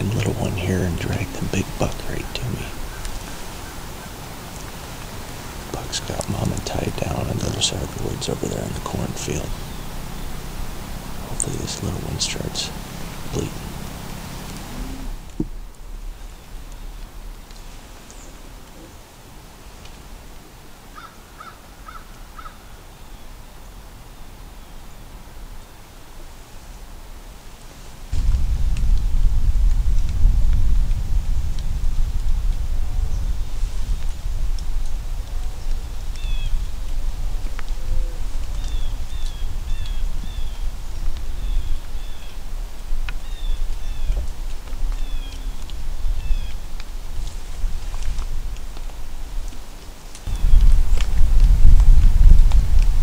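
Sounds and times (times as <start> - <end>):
low rumble: 0.0 - 18.8, 28.1 - 48.6, 50.3 - 53.0
faint steady background noise: 0.0 - 53.0.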